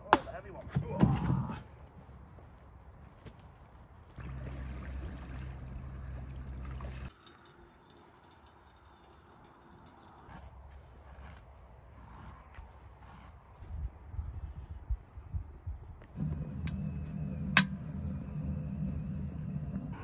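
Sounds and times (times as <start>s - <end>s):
steady low rumble: 14.9s - 20.0s.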